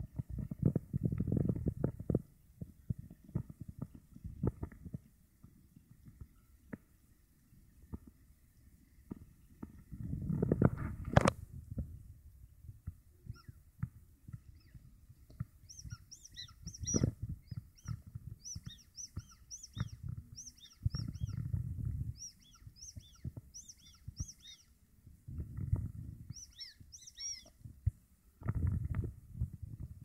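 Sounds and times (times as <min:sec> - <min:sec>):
low rumbling: 0:09.3 - 0:30.0
small birds chirping: 0:13.2 - 0:27.7.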